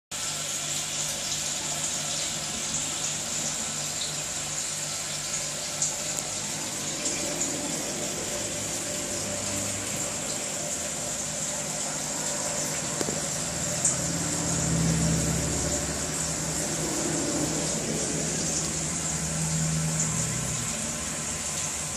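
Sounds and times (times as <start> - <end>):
aquarium filter water bubbling: 0.1 - 21.9.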